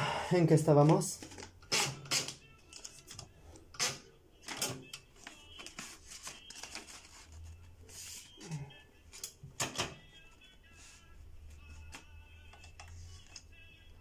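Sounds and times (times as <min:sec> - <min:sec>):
paper rustling: 0:05.2 - 0:09.2.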